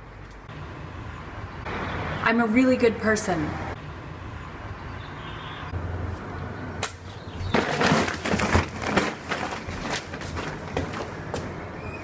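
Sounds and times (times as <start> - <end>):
plastic bag crinkling: 7.6 - 11.1.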